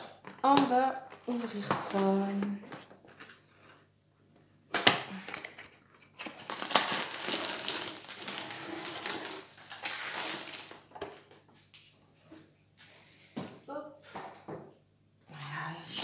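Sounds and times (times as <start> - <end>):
plastic wrap crinkling: 5.1 - 11.8.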